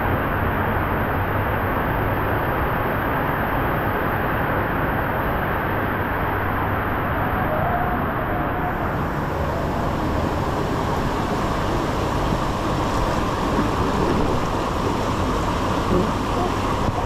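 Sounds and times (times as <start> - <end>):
water rushing down waterslide: 0.1 - 17.0.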